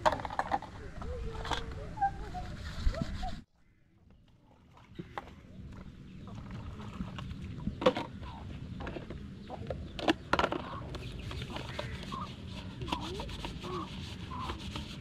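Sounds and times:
chickens clucking: 7.6 - 14.8.

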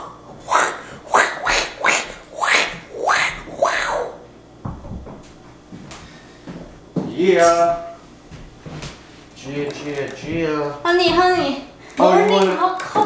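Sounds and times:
person making breathy hissing bursts: 0.0 - 4.2.

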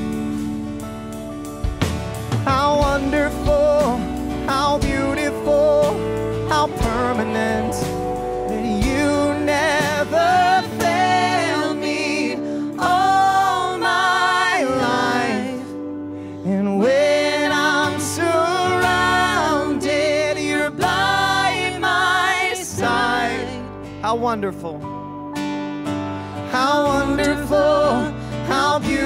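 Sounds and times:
drums: 0.0 - 11.4
acoustic guitar: 0.0 - 29.0
vocalists singing: 2.5 - 23.9, 26.4 - 29.0.

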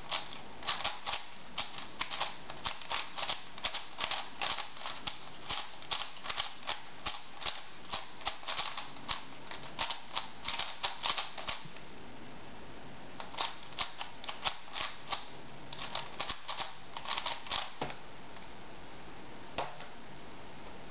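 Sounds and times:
puzzle cube clicking: 0.1 - 11.6, 13.2 - 17.8.

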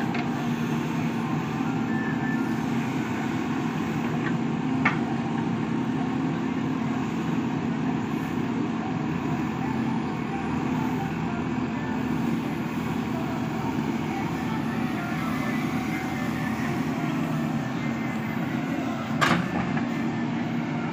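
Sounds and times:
diesel engine running: 0.0 - 20.9.

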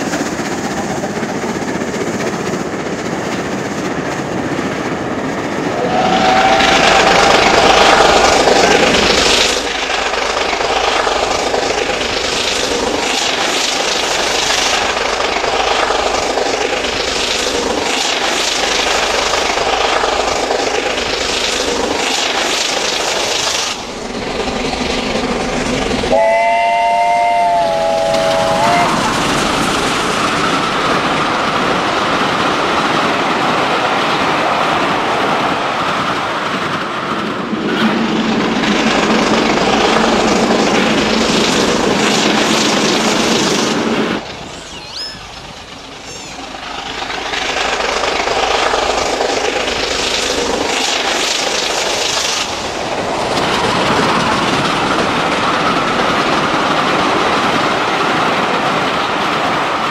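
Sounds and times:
steam locomotive running: 0.0 - 59.9
steam whistle: 5.8 - 8.2, 26.1 - 29.1.

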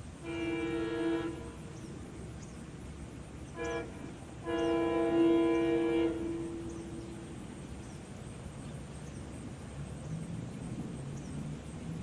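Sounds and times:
train horn: 0.2 - 1.8, 3.5 - 7.2.

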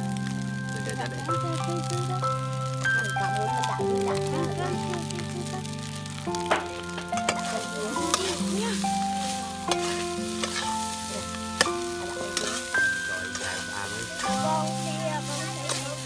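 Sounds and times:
background music of held notes: 0.0 - 16.0
sizzling: 0.0 - 16.0
spoon scraping rice in pan: 7.0 - 16.0.

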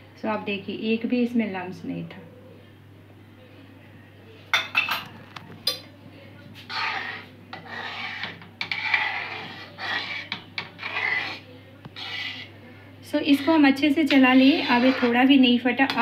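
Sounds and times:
skimmer scraping round pan: 6.6 - 16.0.

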